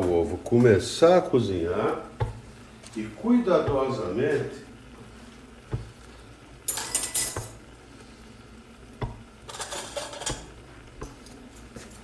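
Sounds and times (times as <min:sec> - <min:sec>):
metal utensil scraping pot: 0:09.4 - 0:10.5.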